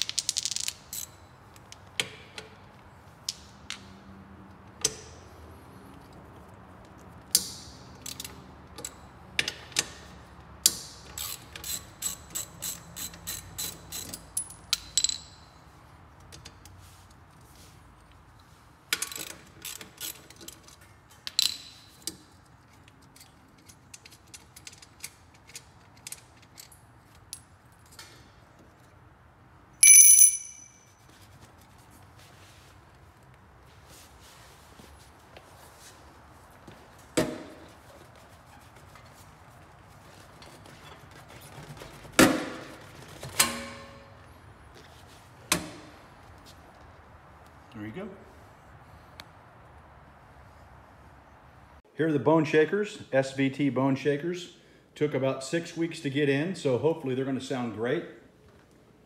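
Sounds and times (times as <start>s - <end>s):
ratchet wrench clicking: 10.7s - 15.2s
metallic clank with ringing: 29.8s - 30.9s.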